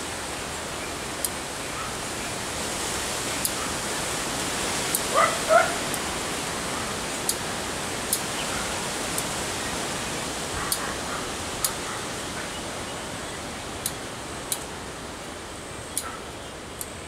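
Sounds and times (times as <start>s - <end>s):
outdoor hiss: 0.0s - 17.0s
dog yipping: 5.1s - 5.8s.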